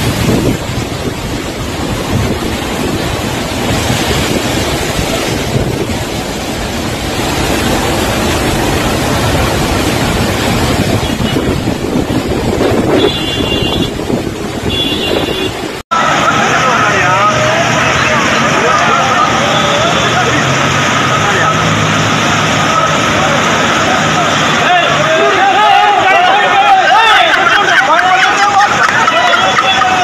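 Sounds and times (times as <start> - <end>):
wind buffeting microphone: 0.0 - 15.8
rushing floodwater: 0.0 - 30.0.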